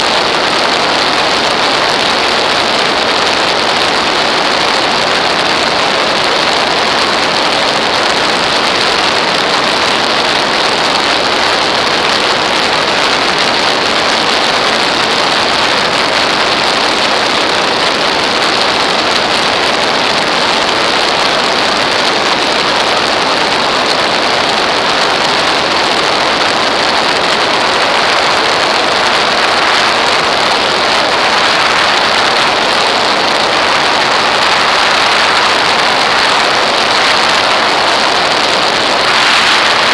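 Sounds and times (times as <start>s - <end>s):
wind noise rushing: 27.5s - 39.9s.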